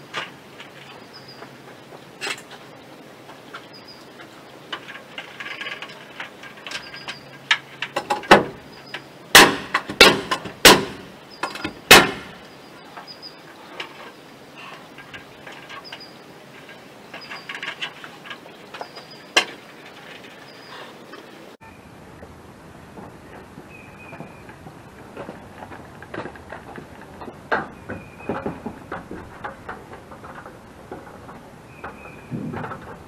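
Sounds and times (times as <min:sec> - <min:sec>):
handling clatter: 0:04.2 - 0:12.4
hammer bangs on wood framing: 0:09.3 - 0:11.1, 0:11.9 - 0:12.4.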